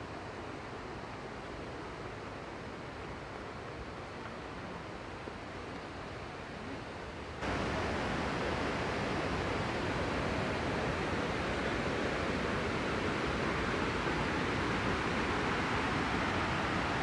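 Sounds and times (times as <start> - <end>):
river and waterfall rushing: 6.0 - 17.0.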